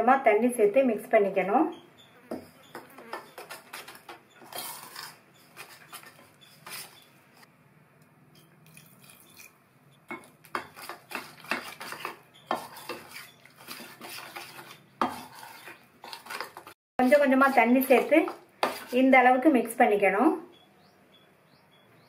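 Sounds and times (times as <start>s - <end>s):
metal spoon scraping steel bowl: 2.3s - 7.2s, 10.1s - 19.1s.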